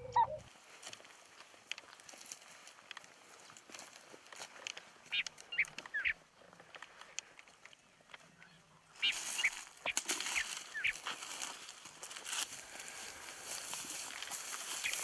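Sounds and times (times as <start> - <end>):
birds calling: 0.0 - 0.5, 4.5 - 11.9, 12.7 - 15.0
light crackles: 0.5 - 8.5.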